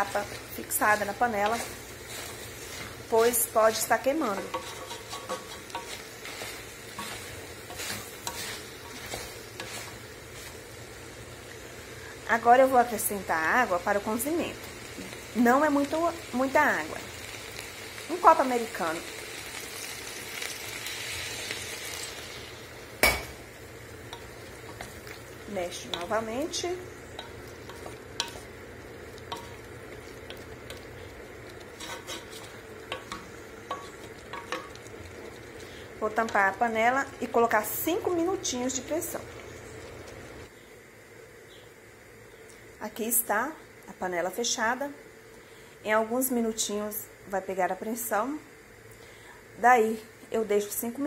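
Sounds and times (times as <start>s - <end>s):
wooden spoon scraping a pot: 0.0s - 10.6s, 29.3s - 34.8s
chicken sizzling: 0.0s - 51.0s.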